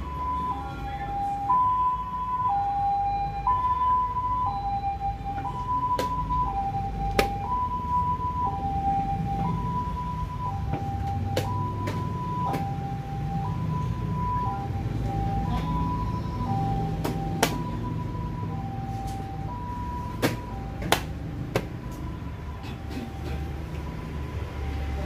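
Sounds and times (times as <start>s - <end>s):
two-tone siren: 0.0s - 25.0s.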